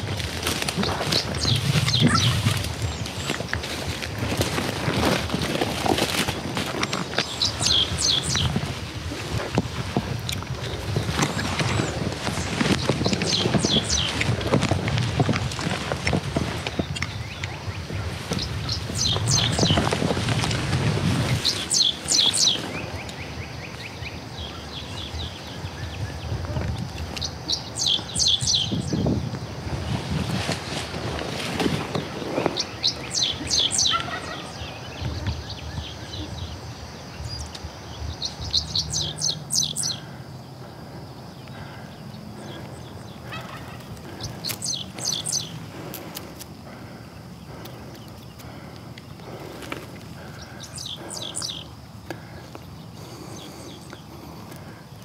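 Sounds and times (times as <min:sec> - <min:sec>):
songbird calling: 0:00.0 - 0:55.0
wild turkey yelping: 0:01.8 - 0:02.6, 0:32.9 - 0:34.8, 0:43.2 - 0:45.9.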